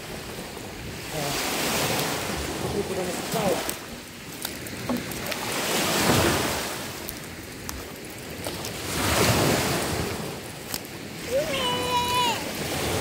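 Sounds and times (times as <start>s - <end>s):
waves breaking on sandy shore: 0.0s - 13.0s.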